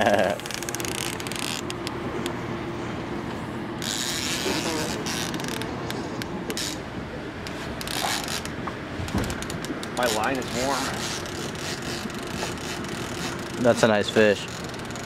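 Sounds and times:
fishing reel clicking: 0:10.0 - 0:13.7, 0:14.4 - 0:15.0.

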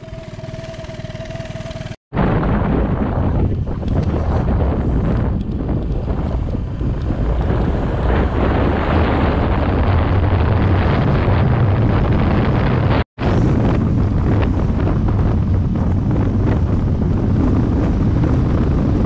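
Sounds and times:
motor scooter running: 0:00.0 - 0:02.0, 0:03.5 - 0:10.9
wind rush on microphone: 0:01.8 - 0:19.0.

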